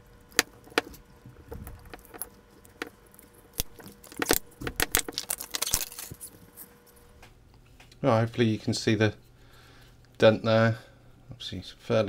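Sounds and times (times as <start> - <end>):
plastic sleeve crackling: 1.4 - 6.6.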